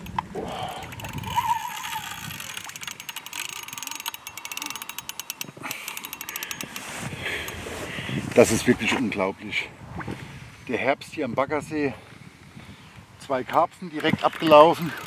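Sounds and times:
fishing reel ratcheting: 0.0 - 7.6, 13.4 - 15.0.

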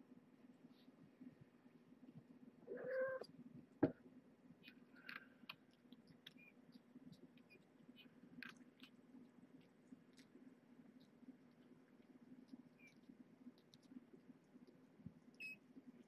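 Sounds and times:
low room hum: 0.0 - 16.0
cat meowing: 2.7 - 3.3.

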